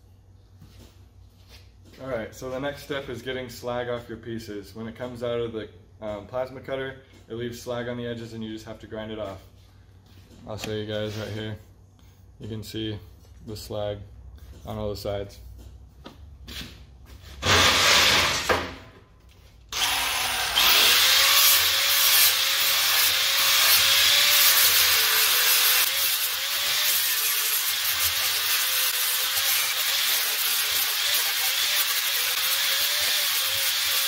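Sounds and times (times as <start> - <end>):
grinder whining on steel: 19.7 - 34.0.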